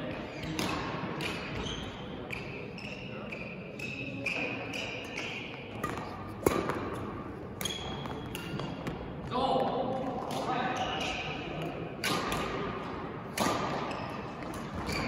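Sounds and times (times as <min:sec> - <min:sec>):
rackets hitting shuttlecock: 0:00.3 - 0:02.6, 0:03.3 - 0:15.0
sneakers squeaking on court: 0:01.3 - 0:09.1, 0:13.8 - 0:15.0.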